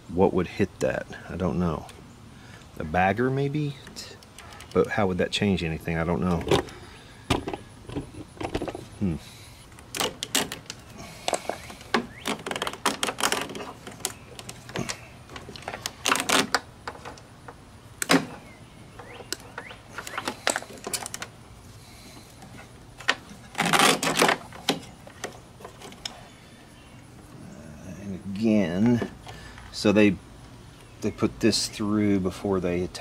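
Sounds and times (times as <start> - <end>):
clicks and rattles of plastic housing: 3.8 - 5.1, 6.2 - 8.9, 9.8 - 18.4, 19.0 - 21.4, 23.0 - 26.2
scraping rustle: 7.6 - 17.2, 19.9 - 26.5.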